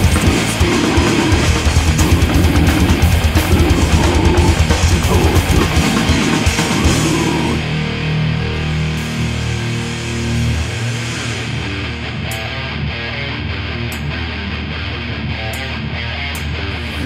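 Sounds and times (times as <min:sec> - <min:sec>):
fast dense drumming: 0:00.0 - 0:07.6
distorted electric guitars: 0:00.0 - 0:17.0.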